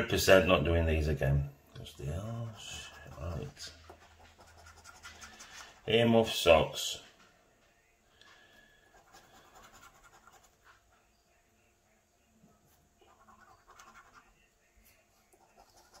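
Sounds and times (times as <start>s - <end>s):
coin scratching a scratchcard: 2.6s - 5.9s, 9.0s - 10.7s, 13.0s - 14.4s, 15.3s - 16.0s.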